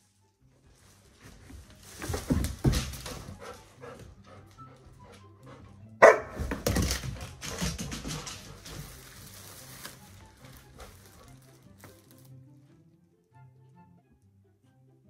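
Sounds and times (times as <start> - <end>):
dog barking: 6.0 - 6.6
plastic bag crinkling: 8.6 - 12.4.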